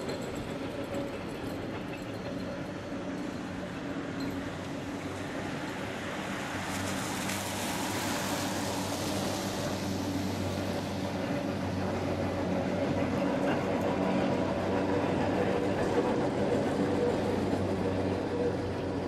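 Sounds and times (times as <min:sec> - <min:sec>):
electric tram humming: 0:00.0 - 0:19.0
car tyres hissing on wet road: 0:05.4 - 0:12.6.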